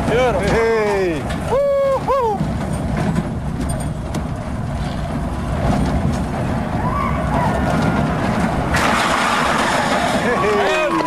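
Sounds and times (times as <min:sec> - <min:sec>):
roller coaster train rumbling on track: 0:00.0 - 0:11.0
faint distant shouts: 0:06.8 - 0:08.1.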